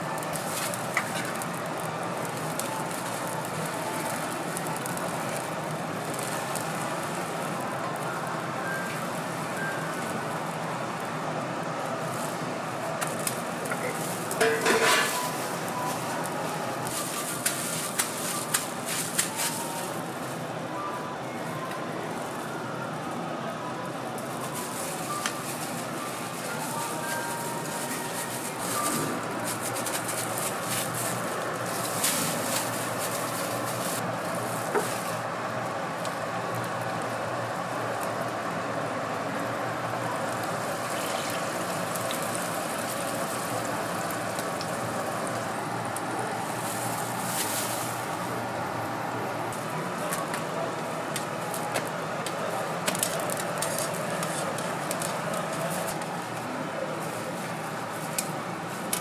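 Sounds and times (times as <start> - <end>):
street noise: 0.0 - 59.0
food sizzling in oil: 13.1 - 19.8.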